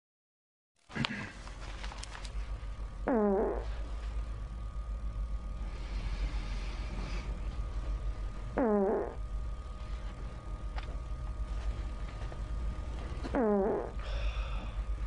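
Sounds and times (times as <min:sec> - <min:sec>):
steady low hum: 0:00.8 - 0:15.0
fart sounds: 0:03.0 - 0:03.8, 0:08.5 - 0:09.2, 0:13.2 - 0:14.0.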